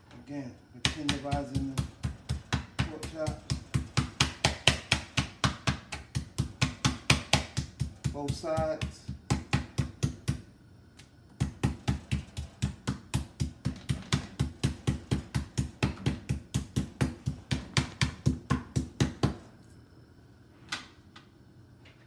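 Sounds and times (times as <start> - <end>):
meat tenderizer pounding meat: 0.8 - 10.4, 11.4 - 19.4.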